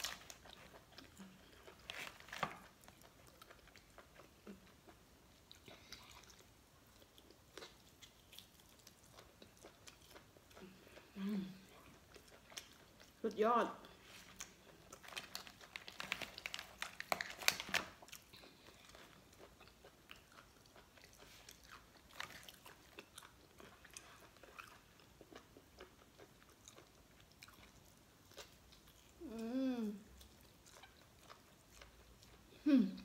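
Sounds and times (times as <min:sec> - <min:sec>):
chewing and mouth sounds: 0:00.0 - 0:33.0
lobster shell clicks and crackles: 0:15.1 - 0:17.9
person humming: 0:29.2 - 0:30.1, 0:32.6 - 0:33.0.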